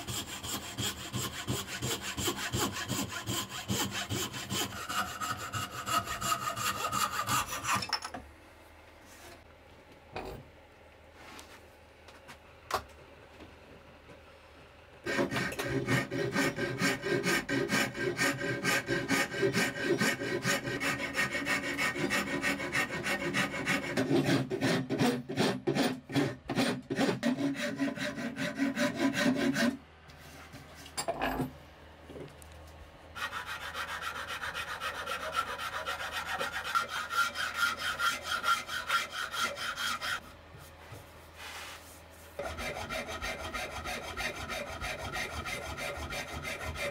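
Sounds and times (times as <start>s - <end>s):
hand file scraping wood: 0.0s - 7.8s, 15.1s - 29.8s, 33.2s - 40.3s, 41.4s - 46.9s.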